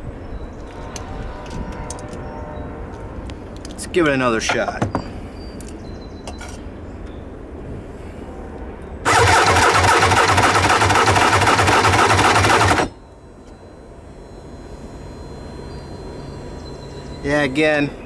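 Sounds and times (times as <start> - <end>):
starter motor cranking an engine: 9.1 - 12.9.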